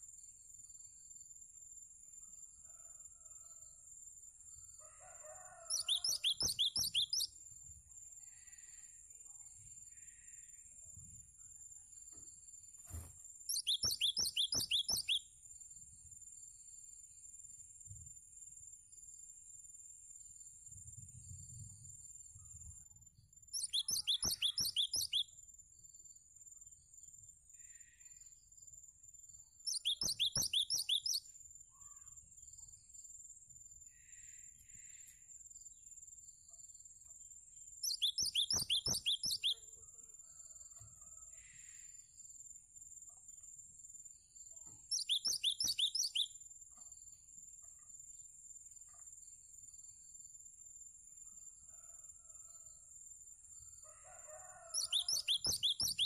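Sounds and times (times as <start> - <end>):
faint soft bird notes: 12.2 - 15.2, 29.7 - 31.2, 37.9 - 39.6, 44.6 - 46.9.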